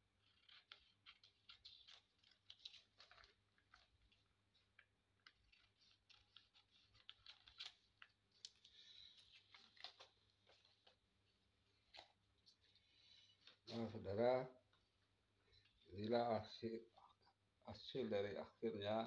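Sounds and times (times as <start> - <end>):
scissors cutting paper: 0.0 - 4.0
paper rustling: 0.0 - 14.3.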